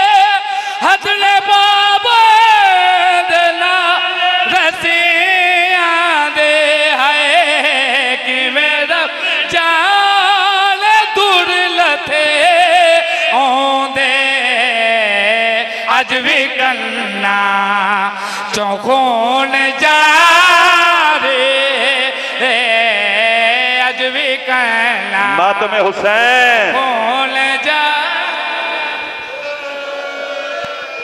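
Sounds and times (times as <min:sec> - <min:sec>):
person chanting a lament: 0:00.0 - 0:31.0.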